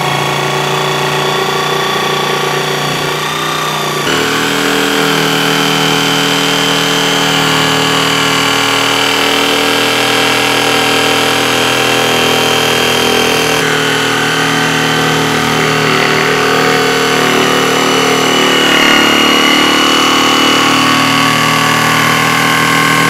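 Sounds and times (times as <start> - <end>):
electric jigsaw sawing wood: 0.0 - 23.0.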